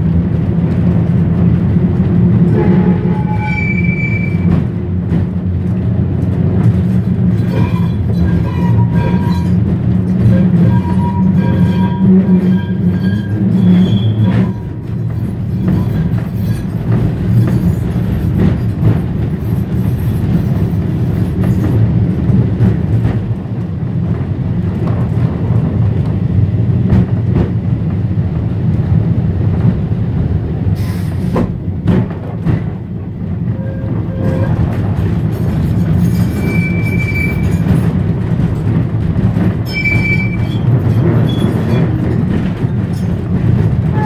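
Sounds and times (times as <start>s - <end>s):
tram motors and wheels rumbling: 0.0s - 44.0s
clicks from rail joints: 4.2s - 26.3s, 31.0s - 33.0s, 33.8s - 44.0s.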